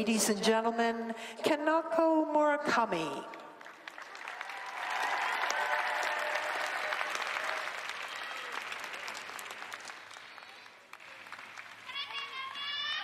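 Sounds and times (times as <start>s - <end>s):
crowd clapping: 3.4s - 13.0s
crowd cheering: 3.9s - 13.0s.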